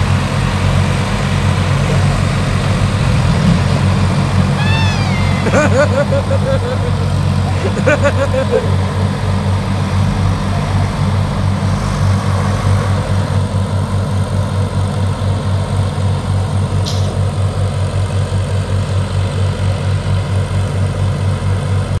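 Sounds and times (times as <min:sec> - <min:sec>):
tractor diesel engines throbbing: 0:00.0 - 0:22.0.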